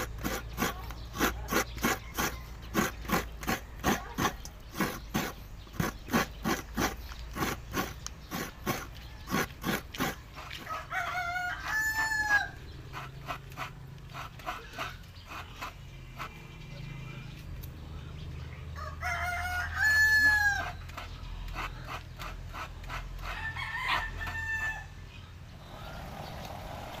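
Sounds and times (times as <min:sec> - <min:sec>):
coconut scraped on a grater: 0:00.0 - 0:17.0, 0:19.8 - 0:24.7
rooster crowing: 0:10.6 - 0:12.6, 0:18.8 - 0:20.8, 0:23.4 - 0:25.0.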